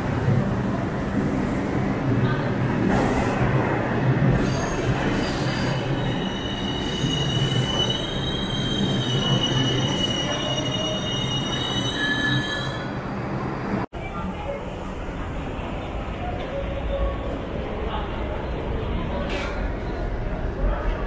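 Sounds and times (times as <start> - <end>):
subway train rumbling: 0.0 - 21.0
train wheels squealing on rails: 4.3 - 13.1.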